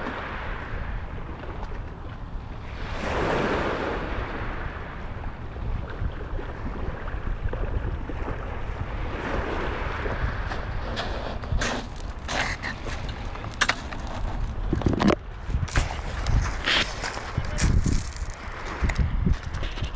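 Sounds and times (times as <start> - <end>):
wind rumbling on microphone: 0.0 - 19.9
waves washing on pebble beach: 2.6 - 5.5, 15.6 - 19.0.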